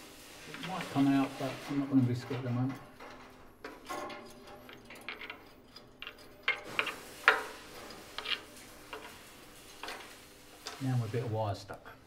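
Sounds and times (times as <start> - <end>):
metal tube scraping inside boiler: 4.9 - 11.3.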